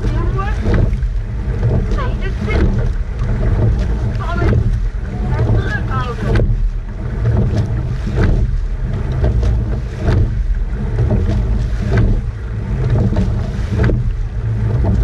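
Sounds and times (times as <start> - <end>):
low rush of water: 0.0 - 15.0
oar blades splashing: 0.0 - 15.0
oars clunking in oarlocks: 0.0 - 15.0
wind on microphone: 0.0 - 15.0.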